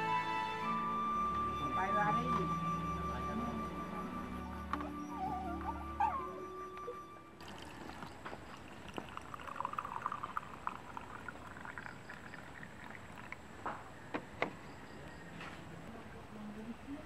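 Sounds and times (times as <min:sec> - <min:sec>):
tea pouring into a cup: 0:07.4 - 0:13.7
light knocks: 0:13.6 - 0:14.6.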